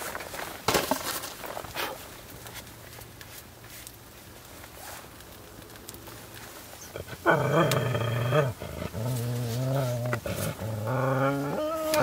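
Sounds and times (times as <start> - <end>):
dog growling: 6.9 - 12.0.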